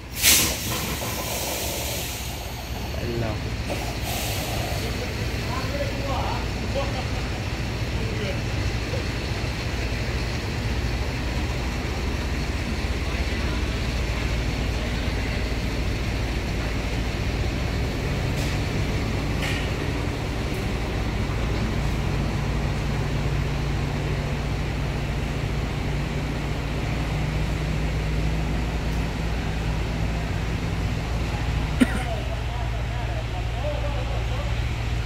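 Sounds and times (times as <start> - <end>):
diesel truck engine drone: 0.0 - 35.0
tyre and road noise: 0.0 - 35.0.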